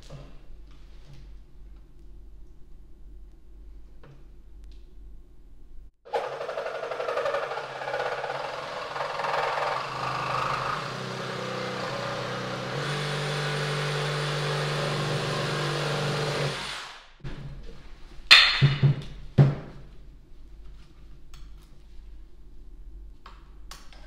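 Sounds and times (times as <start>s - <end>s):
reciprocating saw cutting wood: 6.1s - 17.2s.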